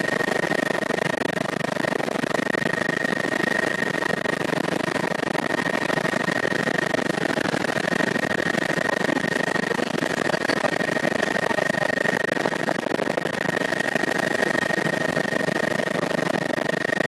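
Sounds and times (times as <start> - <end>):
helicopter engine and rotor noise: 0.0 - 17.0
high-pitched whine: 0.0 - 17.0.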